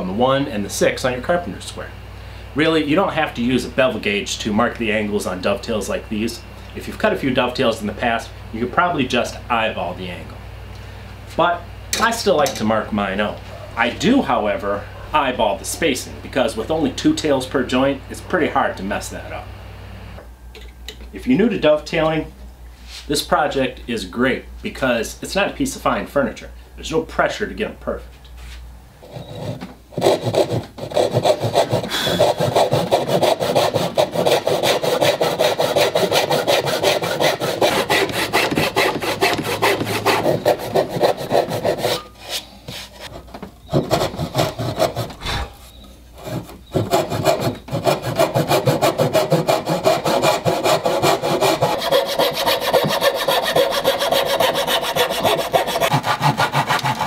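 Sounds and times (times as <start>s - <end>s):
hand saw cutting wood: 29.1s - 45.5s, 46.2s - 57.0s.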